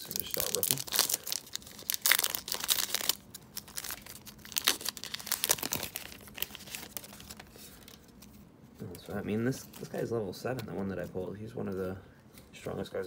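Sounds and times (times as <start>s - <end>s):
foil pack crinkling and tearing: 0.0s - 8.3s.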